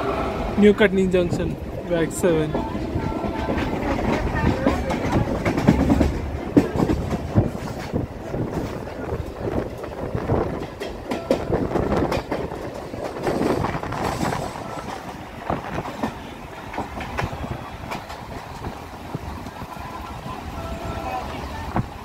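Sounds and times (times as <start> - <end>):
train coach rumble: 0.0 - 22.0
wheels clacking over rail joints: 1.5 - 22.0
coach knocking and rattling: 3.4 - 14.6.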